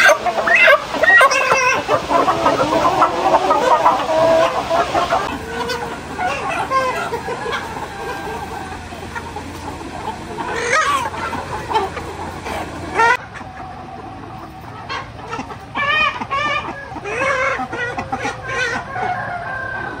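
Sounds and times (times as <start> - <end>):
chickens clucking: 0.0 - 20.0.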